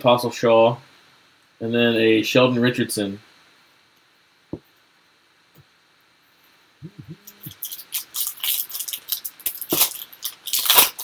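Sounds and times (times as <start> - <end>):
two-note hum: 6.8 - 7.6
foil wrapper crinkling: 7.4 - 11.0.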